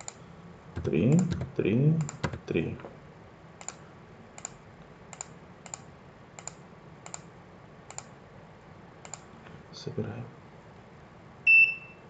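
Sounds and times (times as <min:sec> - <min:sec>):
computer mouse clicks: 0:00.0 - 0:00.2, 0:00.8 - 0:02.4, 0:03.6 - 0:03.8, 0:04.4 - 0:07.3, 0:07.9 - 0:08.1, 0:09.0 - 0:09.3.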